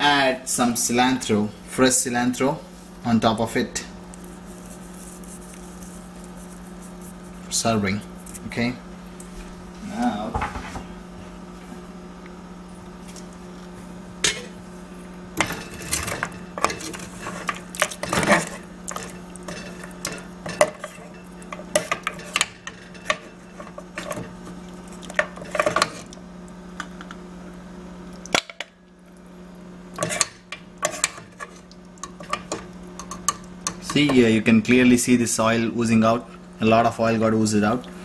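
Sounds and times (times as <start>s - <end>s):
steady low hum: 0.0s - 38.0s
metal ladle scraping metal pot: 15.4s - 24.3s, 30.0s - 34.0s.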